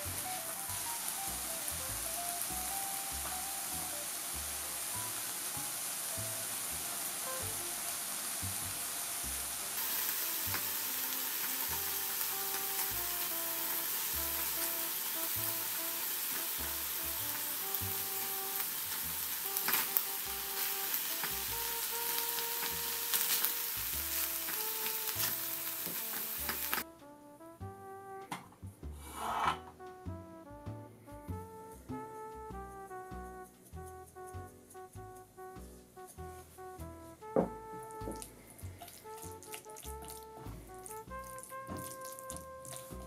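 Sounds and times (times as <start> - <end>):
food sizzling in a frying pan: 0.0 - 26.8, 40.8 - 43.0
spatula scraping a pan: 29.0 - 29.7.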